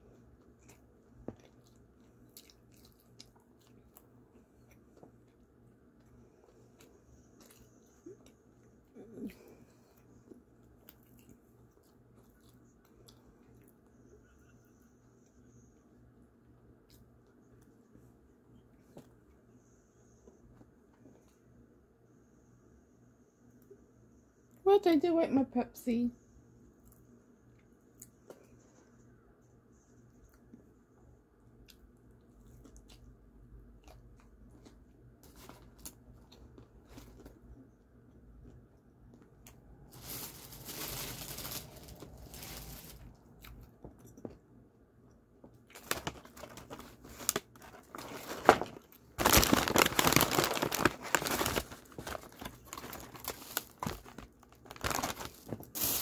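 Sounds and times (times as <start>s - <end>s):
takeout packaging crinkling: 39.9s - 43.2s, 45.7s - 56.0s.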